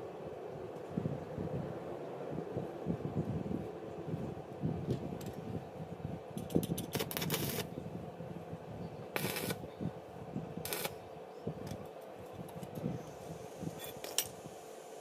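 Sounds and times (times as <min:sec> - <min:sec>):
arc welder hissing: 0:06.9 - 0:07.7, 0:09.1 - 0:09.7, 0:10.6 - 0:11.0, 0:12.8 - 0:15.0.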